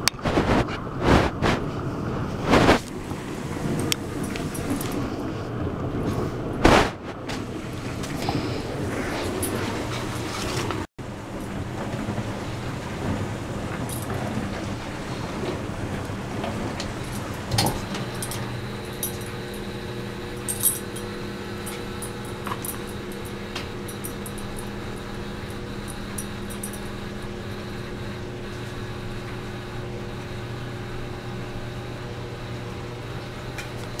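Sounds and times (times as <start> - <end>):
low hum of fan: 0.0 - 34.0
metal collar tags clinking: 17.0 - 19.7, 20.4 - 27.2.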